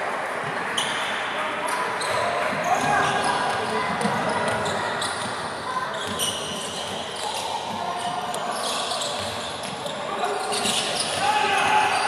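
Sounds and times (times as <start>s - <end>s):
basketball bouncing on court: 2.0s - 7.0s, 9.0s - 9.9s
shoes squeaking: 2.0s - 12.0s.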